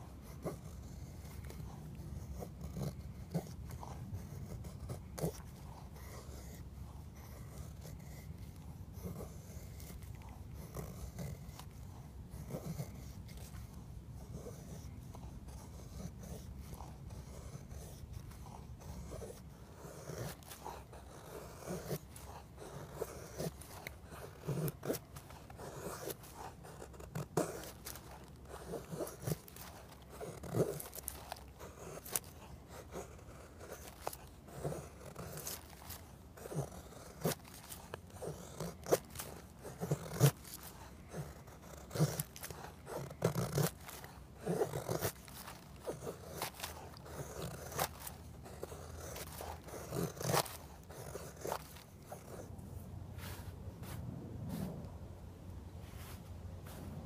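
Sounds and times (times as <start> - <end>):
knife scraping wooden stick: 20.0 - 52.4.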